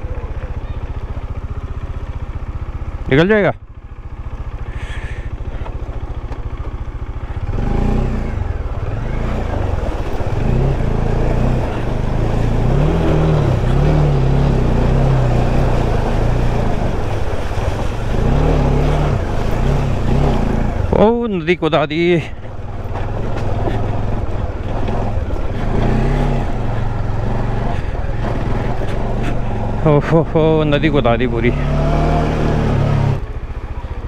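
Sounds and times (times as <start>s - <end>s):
motorcycle engine: 0.0s - 34.0s
water and stones churning: 8.6s - 31.4s.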